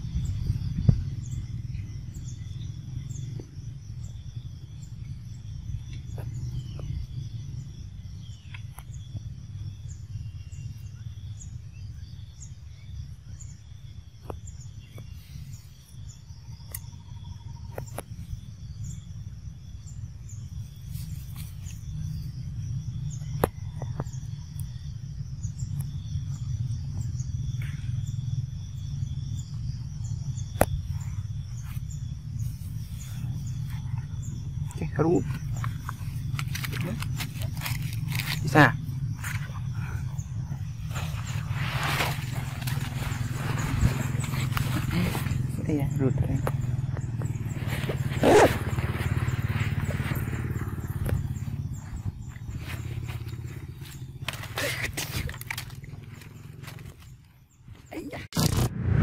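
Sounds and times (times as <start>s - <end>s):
high insect drone: 0.0s - 59.0s
low rumble: 58.3s - 59.0s.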